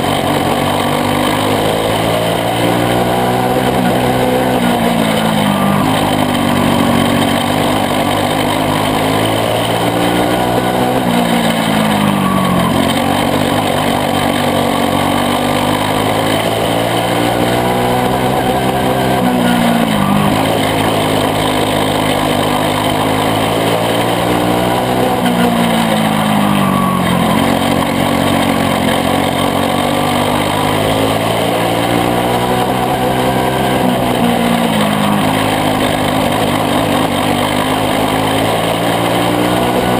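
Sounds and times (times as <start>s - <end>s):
kart engine racing: 0.0s - 39.9s.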